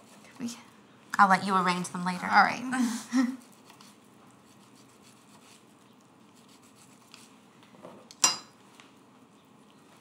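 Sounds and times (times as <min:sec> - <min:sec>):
kitchenware clink: 0:08.1 - 0:08.6.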